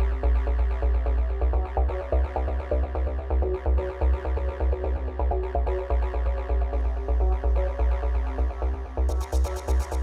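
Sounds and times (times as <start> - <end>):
electronic dance music: 9.1 - 10.0.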